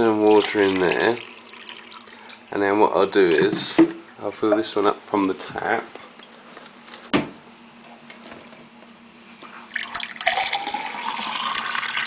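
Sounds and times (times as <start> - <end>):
water filling a glass: 0.0 - 2.5, 9.6 - 12.0.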